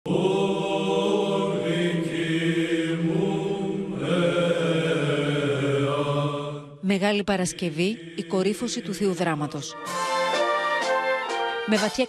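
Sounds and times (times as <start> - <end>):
voices chanting long notes: 0.1 - 6.8.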